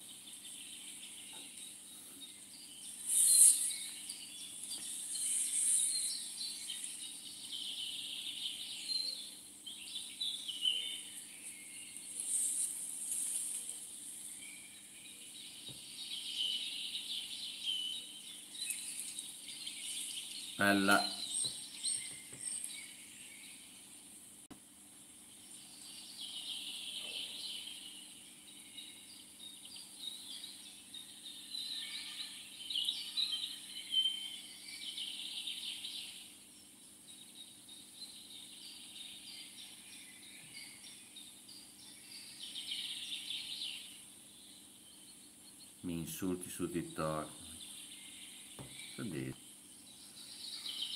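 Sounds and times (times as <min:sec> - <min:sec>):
insects and birds chirping: 0:00.0 - 0:50.9.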